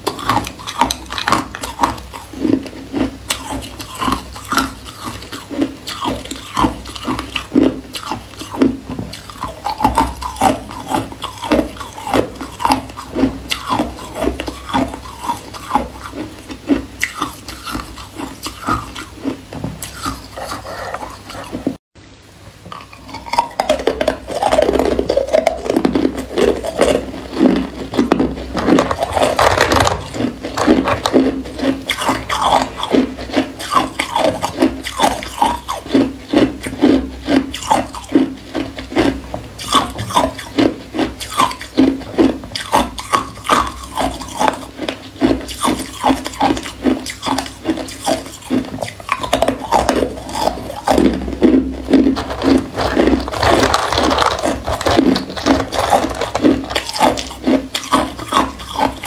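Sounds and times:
ice cubes being chewed: 0.0 - 21.8, 22.7 - 59.0.

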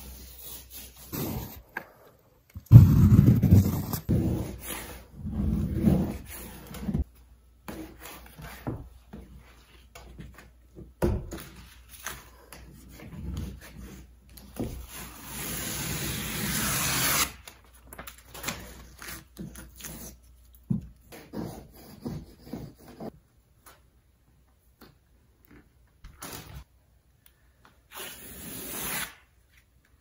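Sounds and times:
scraping and rubbing: 2.7 - 4.7.

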